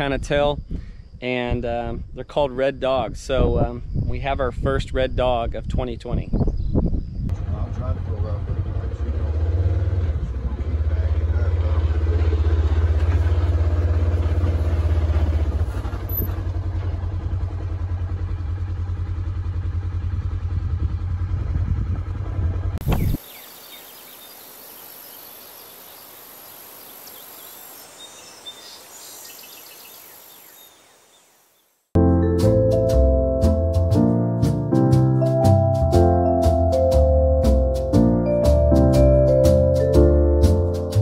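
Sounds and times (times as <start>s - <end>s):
vehicle engine idling: 7.3s - 23.3s
faint bird chirps: 22.8s - 31.8s.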